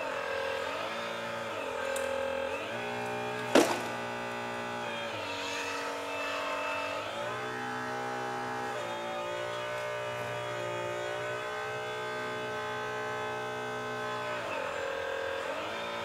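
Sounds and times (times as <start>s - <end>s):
model excavator hydraulic whine: 0.0s - 16.0s
sharp knock: 3.5s - 4.0s.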